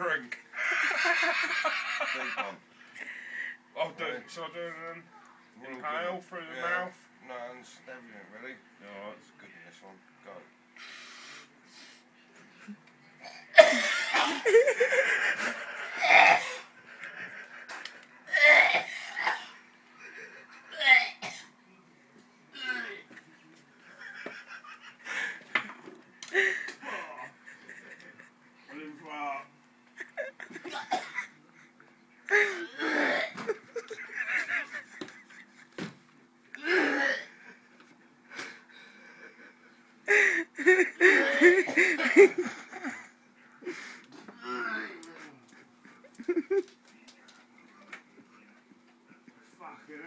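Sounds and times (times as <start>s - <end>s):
men laughing loudly: 0.6s - 2.6s, 13.7s - 16.2s, 16.8s - 18.0s, 23.1s - 25.6s, 26.3s - 28.5s, 30.0s - 31.4s, 33.2s - 35.8s, 39.0s - 43.1s, 45.8s - 46.8s
person wheezing and gasping: 36.6s - 37.4s, 40.1s - 42.1s.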